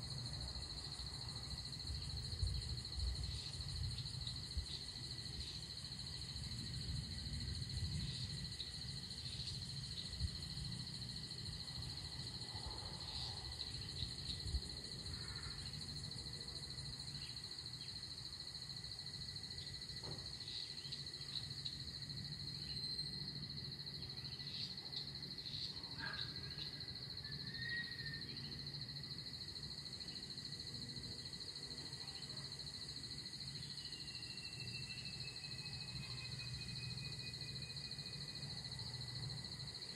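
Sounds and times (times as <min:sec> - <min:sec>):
insect trill: 0:00.0 - 0:39.9
falling whistle: 0:27.4 - 0:28.2.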